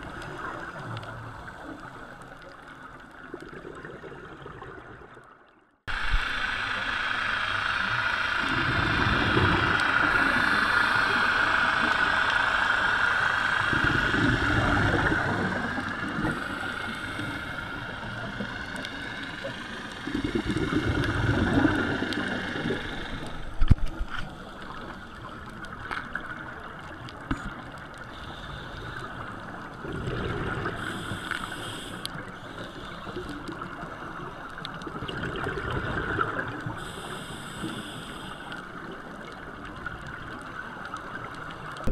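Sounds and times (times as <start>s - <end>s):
steady underwater drone: 0.0s - 41.9s
regulator exhaled bubbles gurgling: 3.2s - 5.5s, 8.4s - 12.1s, 13.6s - 27.7s, 29.2s - 31.3s, 34.8s - 37.3s.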